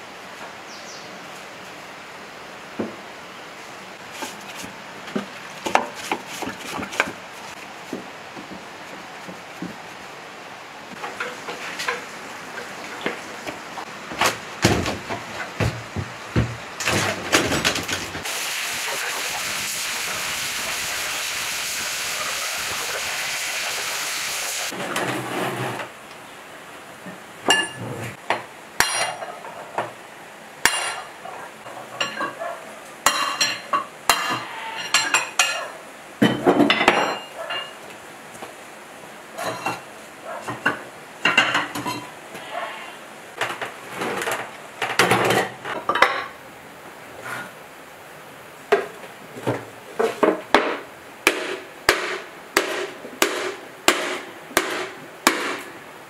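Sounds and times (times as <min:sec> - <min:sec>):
steady hiss: 0:18.2 - 0:24.8
metal tools scraping on engine block: 0:33.2 - 0:35.5.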